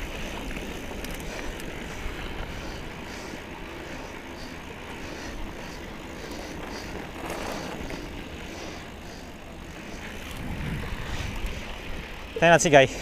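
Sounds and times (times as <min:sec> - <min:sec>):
bike tyres rumbling: 0:00.0 - 0:13.0
wind rushing over microphone: 0:10.1 - 0:12.4.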